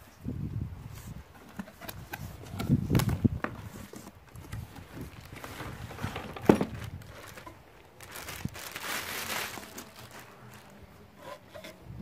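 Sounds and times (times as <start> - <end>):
plastic wrapping crinkling: 4.3 - 11.0.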